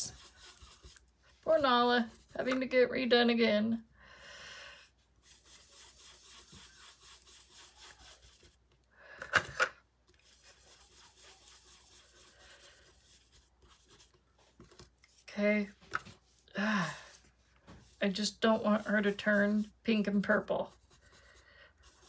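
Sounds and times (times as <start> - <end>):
brush bristles rubbing on card: 0.0 - 1.1, 5.2 - 8.7, 10.1 - 15.3, 16.8 - 22.0.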